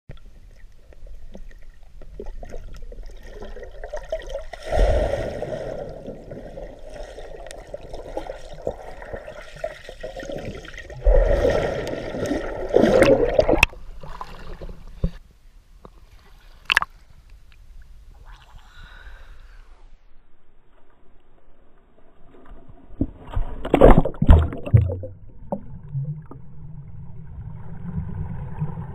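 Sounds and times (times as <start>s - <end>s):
underwater churning and bubbling: 0.1s - 15.2s, 22.6s - 28.9s.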